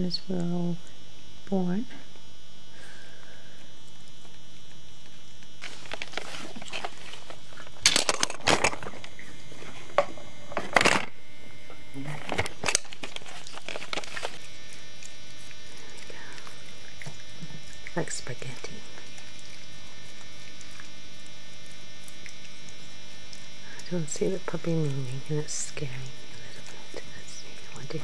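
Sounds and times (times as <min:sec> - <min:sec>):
steady electrical hum: 0:00.0 - 0:28.0
paper rustling and crinkling: 0:05.6 - 0:11.1, 0:12.0 - 0:15.5.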